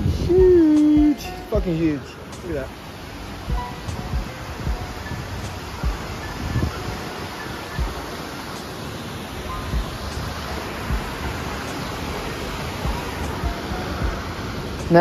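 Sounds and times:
waterfall roaring onto rocks: 0.0 - 15.0
low thumps: 3.4 - 5.1, 5.8 - 6.8, 7.8 - 8.1, 9.7 - 11.3, 12.8 - 14.3.

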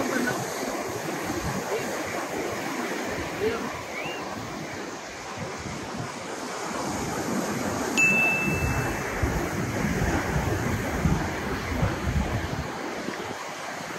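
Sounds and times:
surf on a beach: 0.0 - 13.9
wind buffeting microphone: 0.0 - 13.9
clear ding: 8.0 - 9.2.

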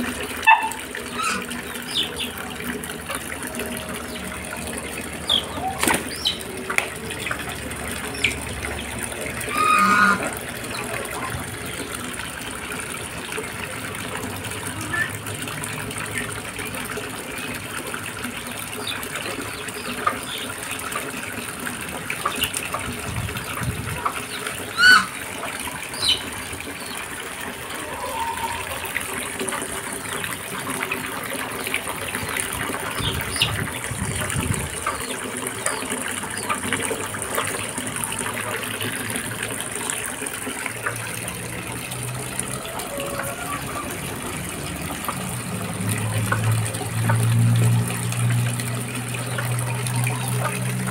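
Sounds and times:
water gushing from hose into tub: 0.0 - 50.9
chickens and ducks calling: 0.1 - 11.4, 22.1 - 30.4, 42.3 - 45.3.

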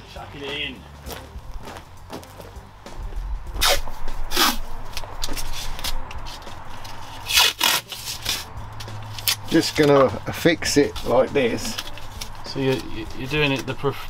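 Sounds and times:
masking tape ripping: 3.6 - 9.9.

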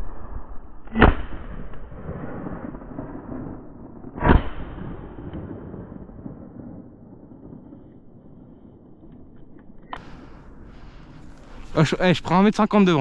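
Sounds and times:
shotgun shots: 0.9 - 3.4, 4.1 - 5.6.

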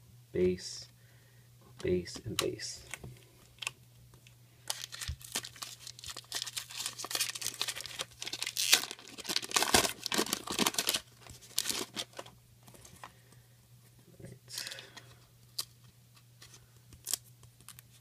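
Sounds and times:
foil wrapper crinkling: 4.6 - 12.4.

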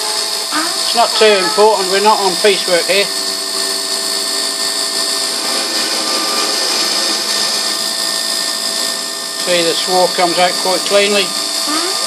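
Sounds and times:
lathe machine whine: 0.0 - 11.8.

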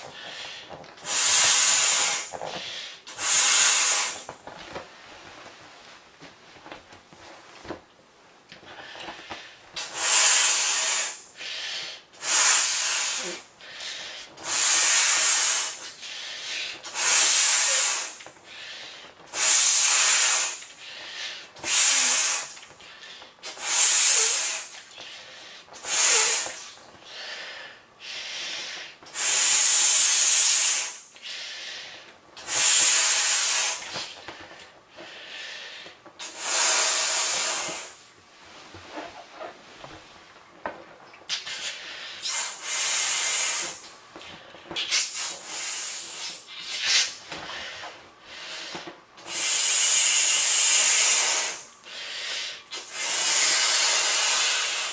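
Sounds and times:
puffs of breath into ball: 0.0 - 4.4, 8.7 - 38.0, 41.3 - 54.9.

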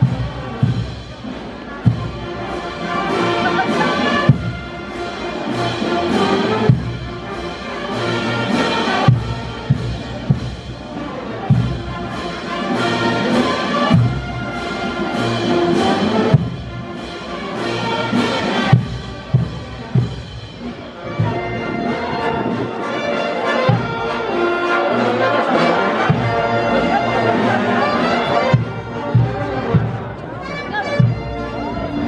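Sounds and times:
heavy drum strokes: 0.0 - 21.4
brass band playing a march: 0.0 - 32.0.

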